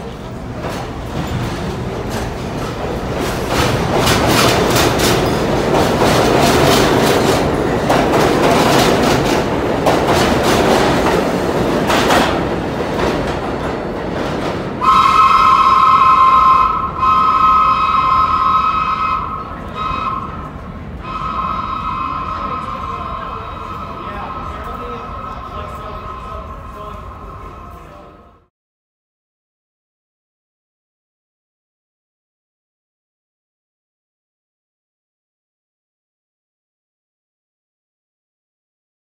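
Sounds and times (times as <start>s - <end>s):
subway wheels clattering on rails: 0.0s - 28.5s
two-tone train horn blasts: 14.8s - 26.6s.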